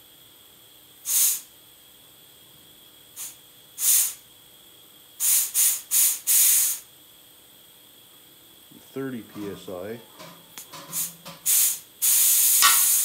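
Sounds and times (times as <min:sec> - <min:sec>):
compressed air hissing: 0:01.0 - 0:01.5, 0:03.1 - 0:04.2, 0:05.2 - 0:06.9, 0:10.9 - 0:13.0.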